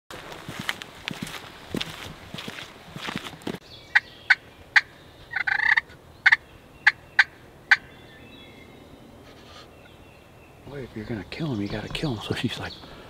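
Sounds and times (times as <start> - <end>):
turkey clucking: 4.0 - 7.8.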